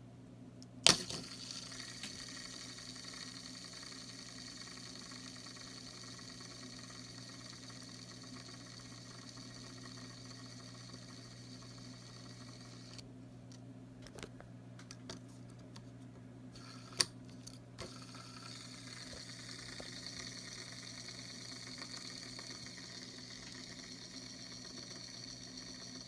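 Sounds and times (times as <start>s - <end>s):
fidget spinner flick click: 0.6s - 2.7s
fidget spinner whirring: 0.8s - 13.0s, 16.6s - 26.0s.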